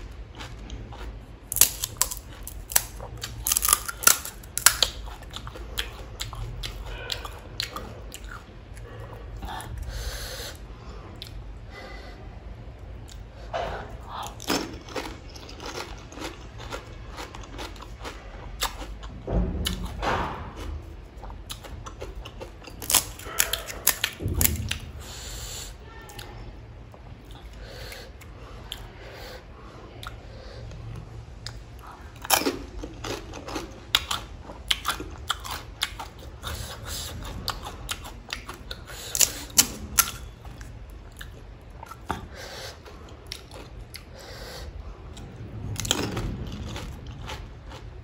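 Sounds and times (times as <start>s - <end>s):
wet chewing: 0.0s - 10.0s, 13.9s - 19.9s, 20.6s - 25.0s, 31.4s - 48.0s
crisp shells crunching: 1.5s - 5.0s, 14.3s - 18.2s, 22.7s - 24.6s.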